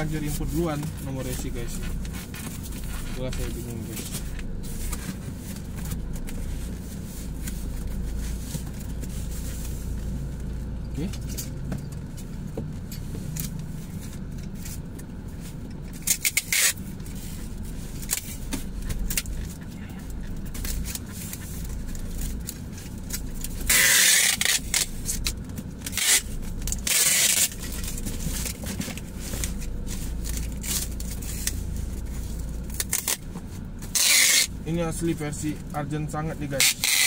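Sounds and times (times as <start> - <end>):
steady low rumble: 0.0 - 37.0
packing tape unrolling screech: 16.0 - 17.3, 23.4 - 28.0, 32.7 - 33.2, 33.8 - 34.6, 36.5 - 37.0.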